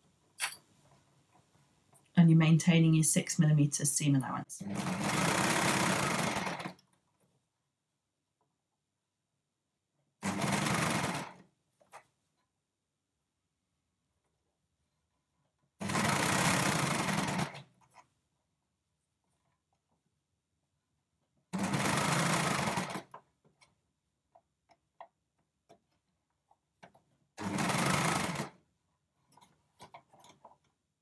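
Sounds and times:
overlocker stitching: 4.6 - 7.1, 10.2 - 12.1, 15.8 - 18.2, 21.5 - 23.8, 25.7 - 30.8.

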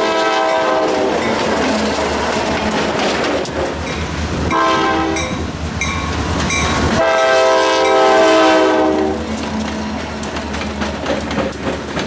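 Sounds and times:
locomotive air horn blasts: 0.0 - 1.2, 4.5 - 5.4, 7.0 - 9.3
diesel train rumbling: 0.0 - 12.0.

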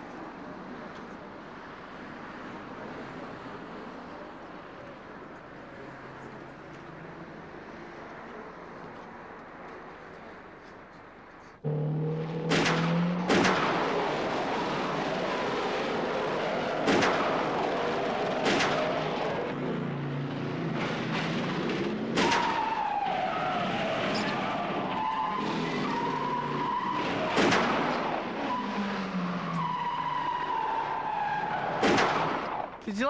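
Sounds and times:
falling whine: 11.6 - 19.6
sharp bangs: 11.6 - 32.8
tyres screeching: 16.0 - 32.8.

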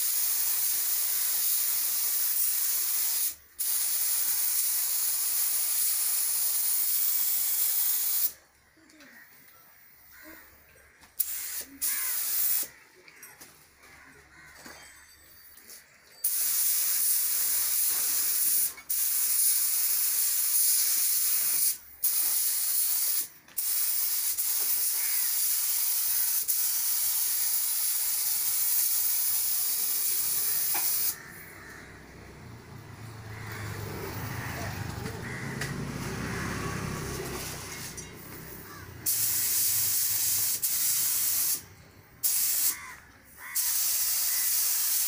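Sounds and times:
spray gun hissing: 0.0 - 8.4, 11.2 - 12.7, 16.2 - 31.2, 37.0 - 42.8, 43.4 - 45.0.

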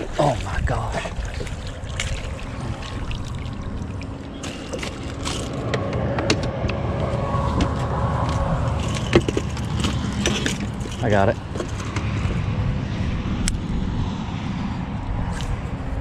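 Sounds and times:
low rumble: 0.0 - 16.0
fishing rods knocking and clicking: 4.4 - 12.4.

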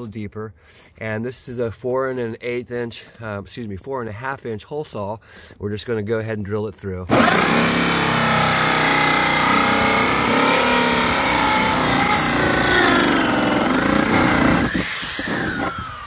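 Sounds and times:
drill hole saw grinding whine: 7.1 - 16.0.

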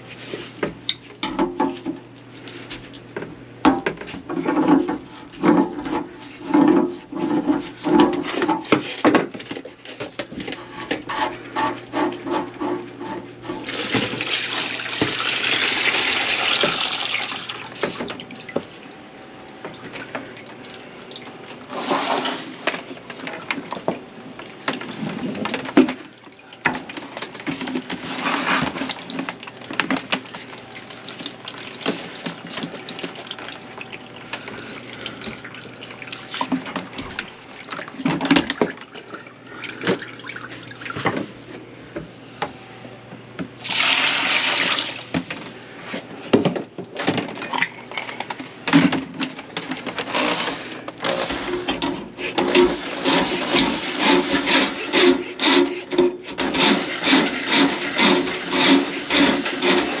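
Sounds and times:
dishes knocking and clattering: 0.6 - 2.0
water running in a sink: 13.5 - 41.2, 43.6 - 45.2
water gushing: 13.6 - 18.8, 43.6 - 45.1.

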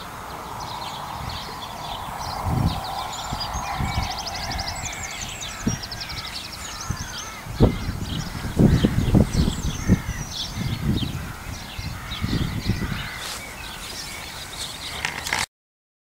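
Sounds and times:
harsh caws: 0.0 - 9.0, 11.2 - 13.8
birds singing and chirping: 0.0 - 15.4.

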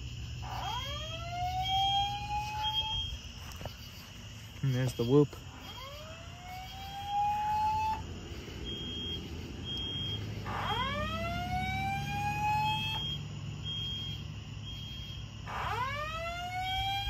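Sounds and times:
alarm rising whoop tone: 0.4 - 3.2, 5.6 - 13.3.

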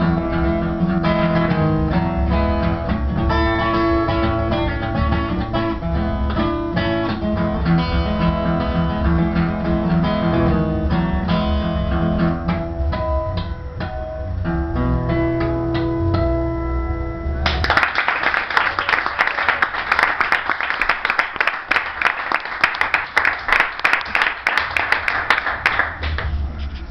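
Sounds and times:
fingerpicked acoustic guitar: 0.0 - 17.5
applause: 17.4 - 26.4.

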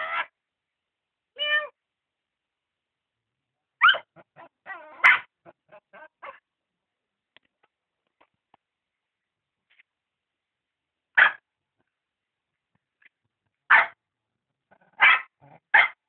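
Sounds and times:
sharp yelps and cries: 0.0 - 0.4, 3.8 - 6.4, 11.2 - 11.4, 13.7 - 14.0, 14.8 - 16.0
dog and cat squabbling: 3.8 - 6.4, 14.7 - 16.0.

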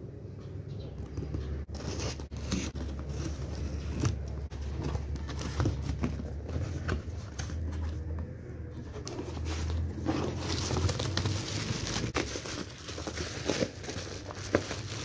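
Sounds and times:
bubble wrap rustling: 8.8 - 15.0.

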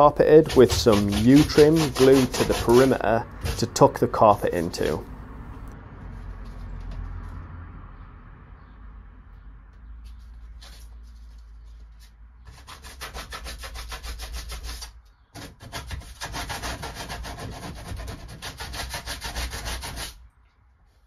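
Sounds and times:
pad rubbing against door panel: 0.3 - 4.0.

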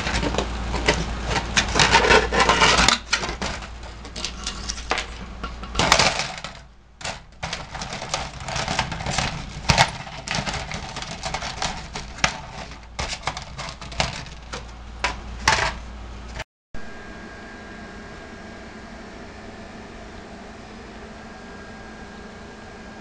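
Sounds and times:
aluminum foil crinkling: 5.8 - 14.7.

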